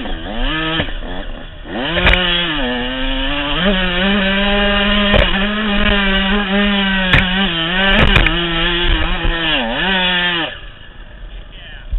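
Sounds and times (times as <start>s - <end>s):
dirt bike engine at high revs: 0.0s - 11.8s
sharp knocks: 5.0s - 6.1s, 7.0s - 9.4s.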